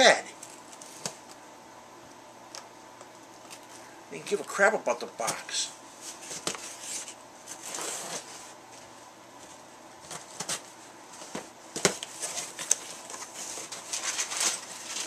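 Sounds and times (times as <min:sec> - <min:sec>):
cardboard rustling: 0:06.0 - 0:15.0.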